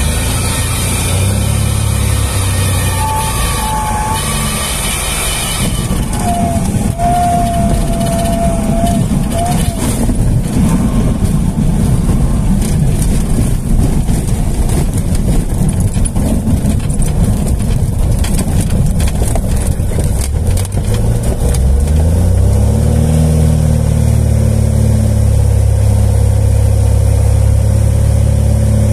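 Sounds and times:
propeller plane engine rumbling: 0:00.0 - 0:28.9.

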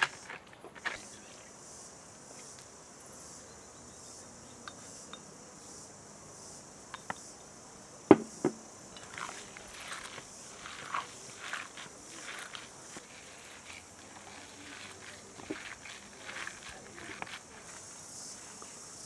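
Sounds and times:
insects buzzing: 0:00.0 - 0:19.0
sharp knocks: 0:08.1 - 0:08.6
hands kneading wet minced meat: 0:09.1 - 0:18.0.

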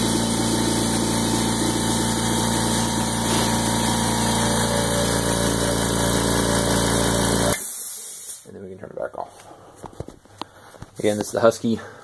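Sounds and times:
air compressor humming: 0:00.0 - 0:08.5.

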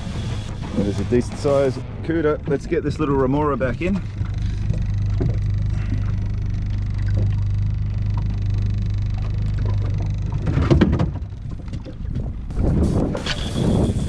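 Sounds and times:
boat engine humming: 0:00.0 - 0:14.0
knocks and rattles: 0:09.6 - 0:13.2.

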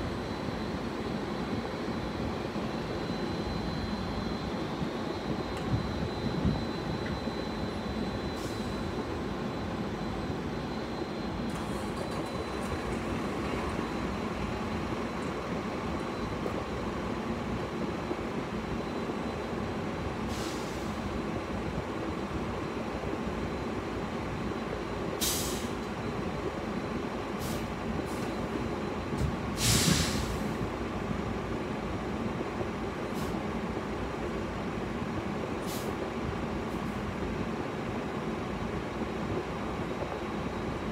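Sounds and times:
faint high whine: 0:00.0 - 0:29.5
truck air brakes hissing: 0:20.3 - 0:21.0, 0:25.2 - 0:25.8, 0:27.4 - 0:28.2, 0:29.6 - 0:30.6, 0:35.6 - 0:36.0.

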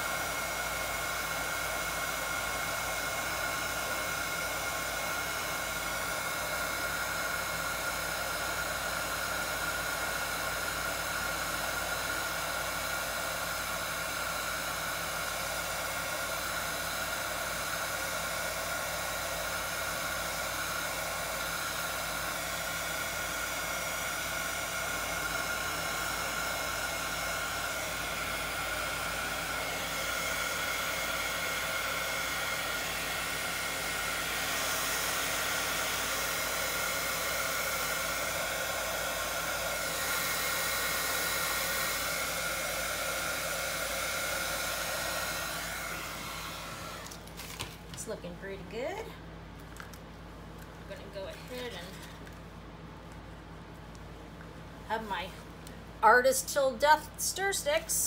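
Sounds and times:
hot-air blower running: 0:00.0 - 0:58.0.

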